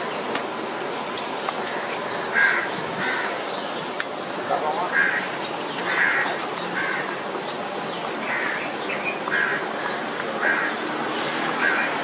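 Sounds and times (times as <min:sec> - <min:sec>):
outdoor background noise: 0:00.0 - 0:12.0
crows cawing: 0:01.6 - 0:03.5, 0:04.8 - 0:07.3, 0:08.2 - 0:12.0.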